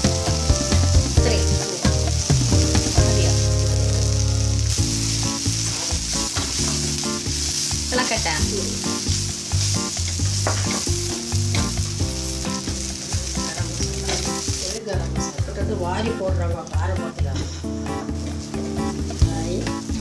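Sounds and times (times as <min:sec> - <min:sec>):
onions sizzling in a frying pan: 0:00.0 - 0:20.0
wooden spoon scraping a pan: 0:04.9 - 0:14.8.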